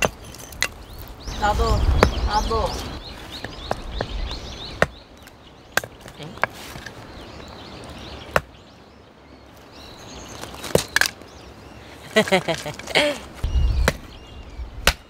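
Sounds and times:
axe chopping firewood: 0.0 - 1.1, 4.8 - 6.9, 8.3 - 8.5, 10.4 - 11.2, 13.8 - 14.1, 14.8 - 15.0.

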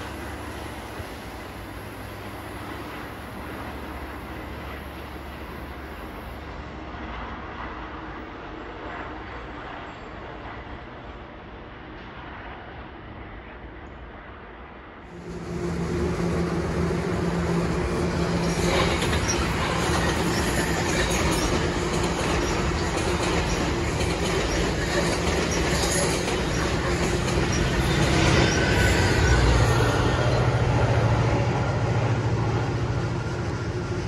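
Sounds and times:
train wheels rumbling on rails: 0.0 - 34.0
faint wheel squeals: 18.2 - 30.6.

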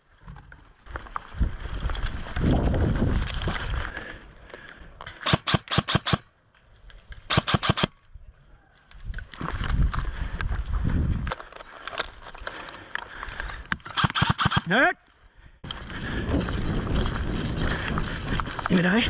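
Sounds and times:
airsoft rifle rapid shots: 5.2 - 6.2, 7.3 - 7.9, 13.9 - 14.8.

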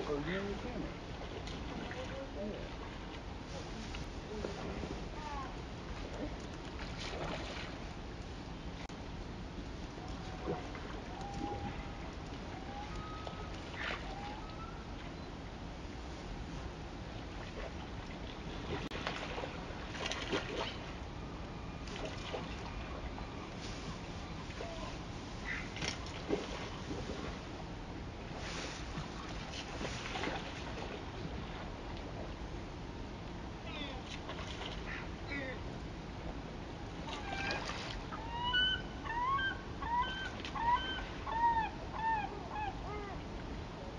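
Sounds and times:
water splashing: 0.0 - 3.2, 5.9 - 7.9, 10.1 - 15.2, 17.3 - 21.0, 21.8 - 23.4, 28.8 - 31.8, 37.0 - 38.2
wind: 0.0 - 43.9.

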